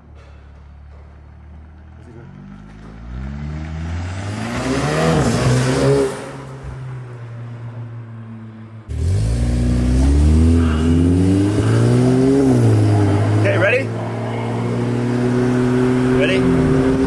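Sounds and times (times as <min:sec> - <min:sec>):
car engine accelerating past: 0:02.2 - 0:07.0, 0:08.9 - 0:17.0.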